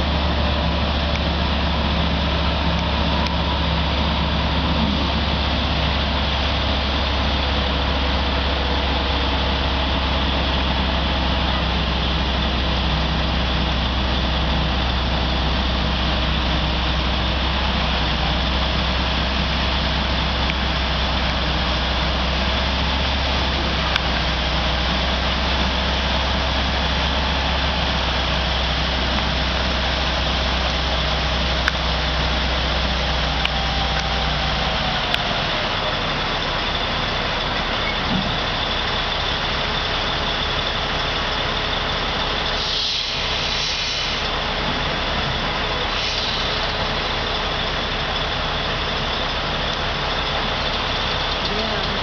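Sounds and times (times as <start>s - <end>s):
diesel engine running: 0.0s - 52.0s.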